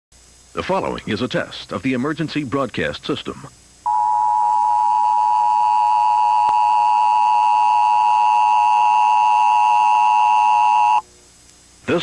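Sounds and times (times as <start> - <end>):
steady two-tone alert signal: 3.9 - 11.0.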